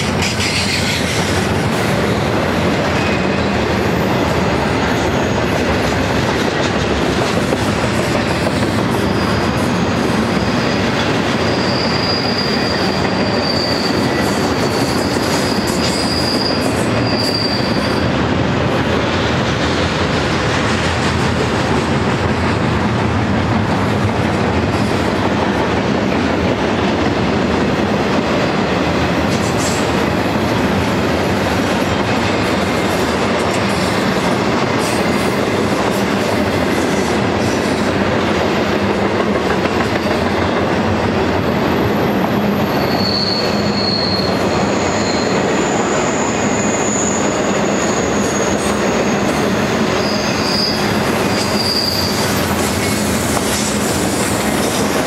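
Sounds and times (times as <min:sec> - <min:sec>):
train rumbling past: 0:00.0 - 0:55.0
high-pitched wheel squeal: 0:10.3 - 0:18.1, 0:42.6 - 0:48.6, 0:50.0 - 0:53.0.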